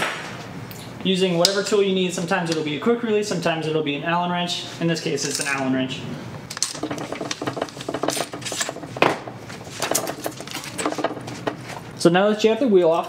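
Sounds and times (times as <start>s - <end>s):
metal clicks and rattles: 6.5s - 11.9s.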